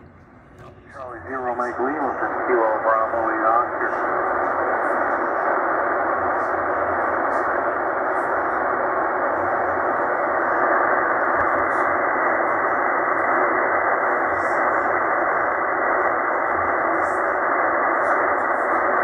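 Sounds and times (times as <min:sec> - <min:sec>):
shortwave radio band noise hiss: 0:00.1 - 0:19.0.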